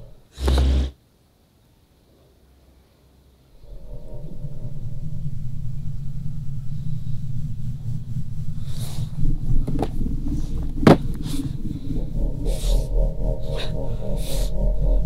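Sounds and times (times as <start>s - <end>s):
low rumbling drone: 3.5s - 15.0s
breathy swishes: 3.6s - 15.0s.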